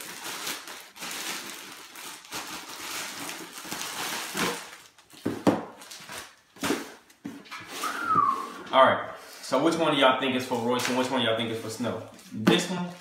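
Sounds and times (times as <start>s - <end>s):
plastic wrapping crinkling: 0.0s - 8.1s.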